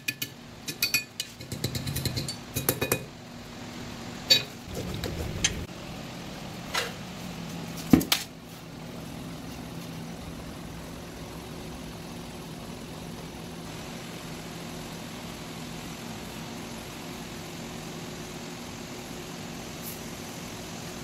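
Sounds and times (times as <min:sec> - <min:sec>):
torch flame hissing: 0:13.6 - 0:21.0.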